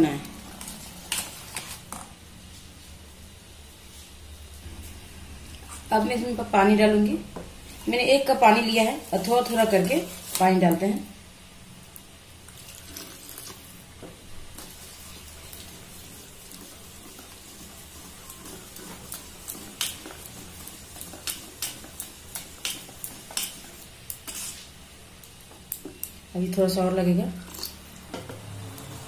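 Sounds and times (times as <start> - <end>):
whisk swishing thick batter: 7.7 - 10.6, 14.6 - 24.8.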